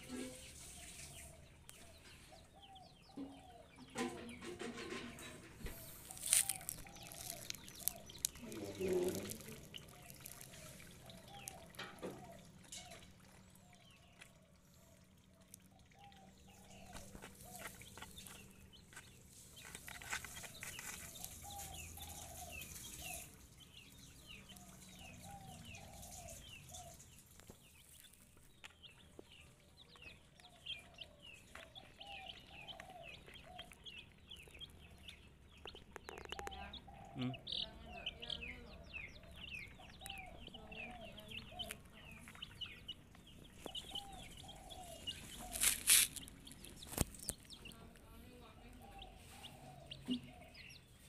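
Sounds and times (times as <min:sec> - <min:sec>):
chicks peeping: 0:00.0 - 0:51.0
chicks clucking softly: 0:28.9 - 0:51.0.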